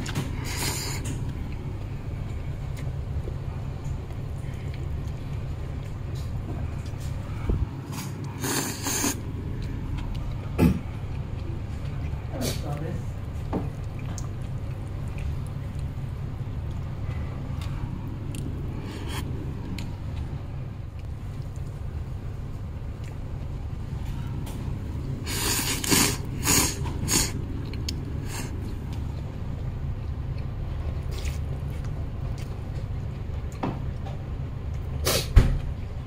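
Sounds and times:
low background hum: 0.0 - 36.0
noodles slurped: 7.8 - 9.8, 25.2 - 28.8.

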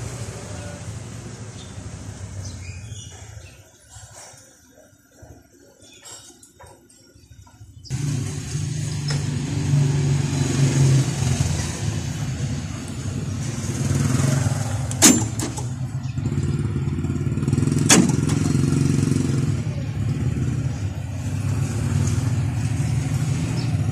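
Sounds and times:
vehicle engine idling: 7.9 - 23.9.

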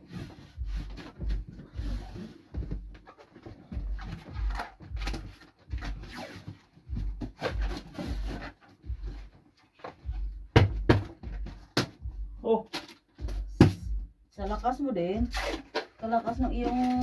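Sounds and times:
dull thuds of treading on box: 0.4 - 6.2, 6.8 - 12.2.

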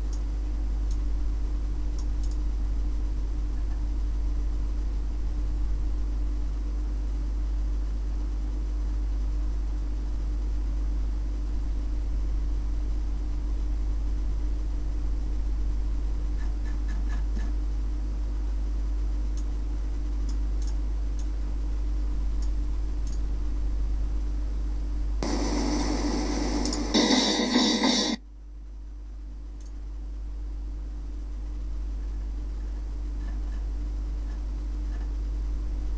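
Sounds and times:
electrical hum with hiss: 0.0 - 35.9
faint clicks: 2.0 - 2.4, 19.3 - 19.5, 20.2 - 21.3, 22.4 - 23.2, 29.6 - 29.8
loud noisy sound: 25.2 - 28.2.

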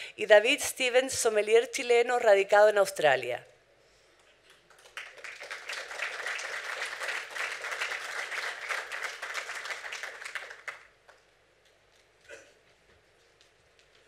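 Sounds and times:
audience applauding: 4.7 - 11.2.

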